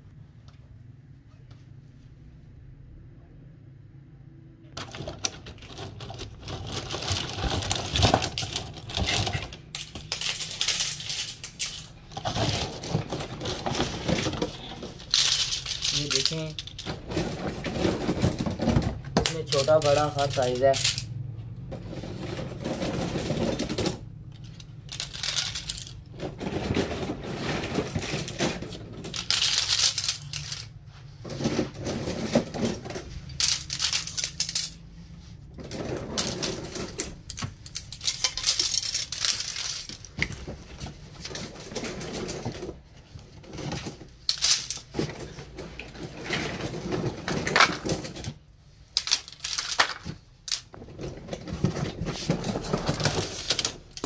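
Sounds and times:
scissors clinking and clattering: 7.7s - 12.4s, 28.3s - 30.7s, 33.3s - 34.8s, 36.2s - 40.1s.

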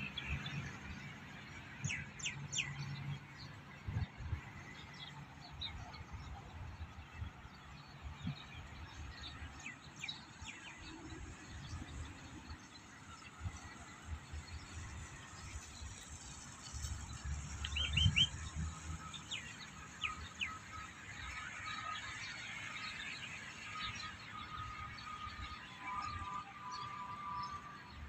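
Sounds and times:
outdoor background noise: 0.0s - 28.0s
birds chirping: 14.4s - 20.9s.

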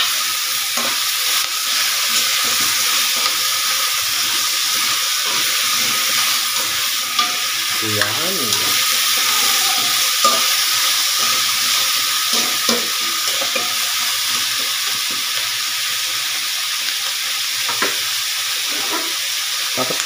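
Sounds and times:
vegetables sizzling in oil: 0.0s - 20.0s.

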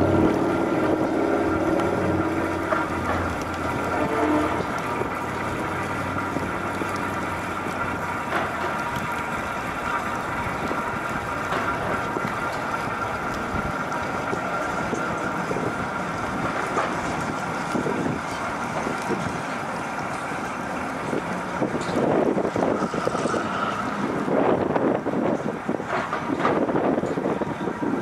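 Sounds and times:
machinery droning: 0.0s - 28.0s
wind noise on microphone: 0.0s - 28.0s.

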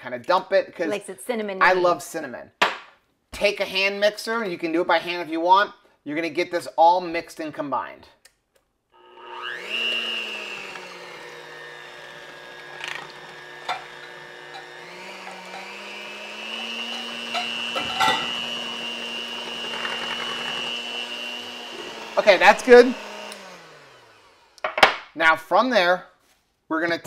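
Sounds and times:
electric hand mixer whine: 9.0s - 24.6s.

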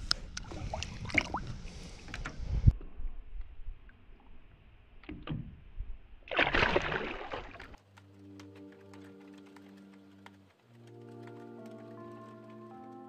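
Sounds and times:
water splashing and dripping: 0.4s - 2.2s, 6.3s - 12.7s
loud fish splash: 6.3s - 7.8s.

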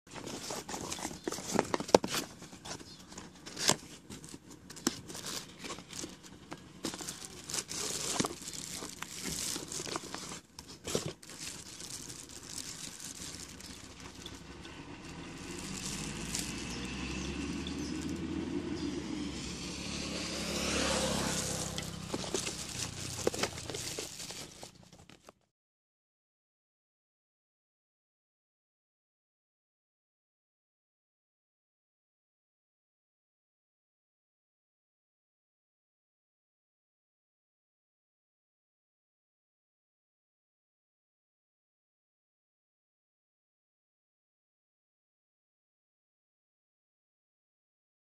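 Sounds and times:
plastic and bubble wrap crinkling: 0.1s - 18.2s, 20.6s - 25.4s.

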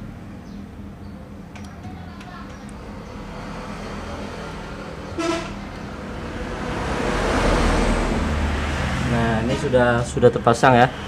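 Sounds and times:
steady low hum: 0.0s - 11.0s
motor vehicle passing: 2.0s - 11.0s
vehicle horn toot: 5.1s - 5.8s.

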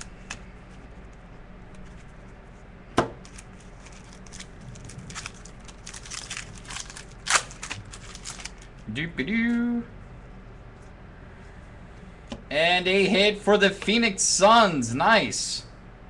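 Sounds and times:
low hum: 0.0s - 13.8s
cards crackling and rustling: 3.0s - 8.8s.

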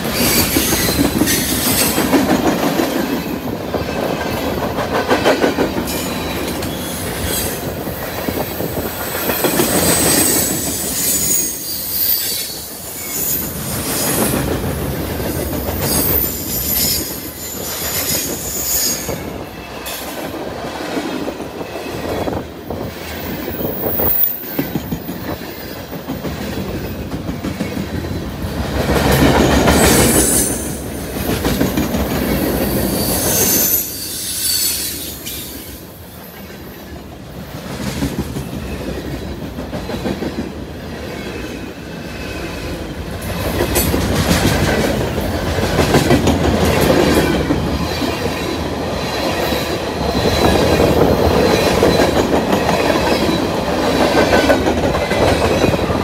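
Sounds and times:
train wheels rumbling and clattering: 0.0s - 56.0s
high-pitched wheel squeals: 9.7s - 13.6s, 32.9s - 35.5s.

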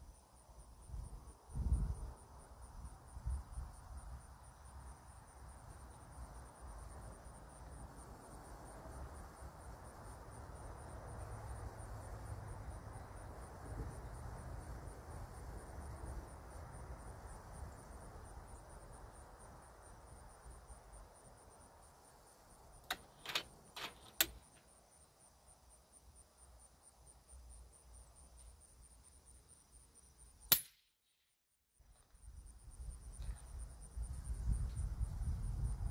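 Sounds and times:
crickets chirring: 0.0s - 30.5s, 31.8s - 35.9s
sharp clicks: 22.8s - 24.6s
air rifle shot: 30.5s - 30.8s.

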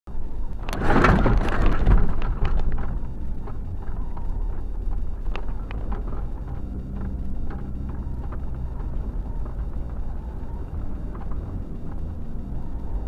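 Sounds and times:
engine and tyres rumbling: 0.1s - 13.0s.

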